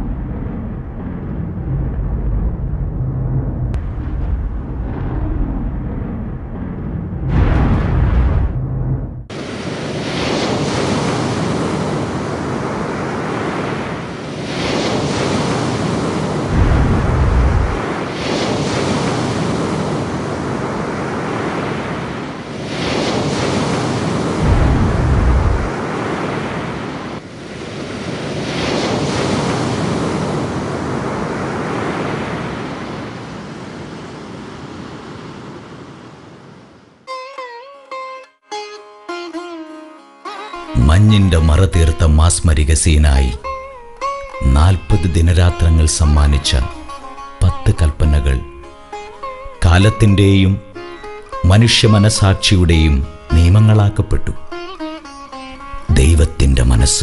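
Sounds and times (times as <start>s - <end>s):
deep rumbles: 0.0s - 9.3s, 16.5s - 17.9s, 24.4s - 25.8s
wind: 0.0s - 37.1s.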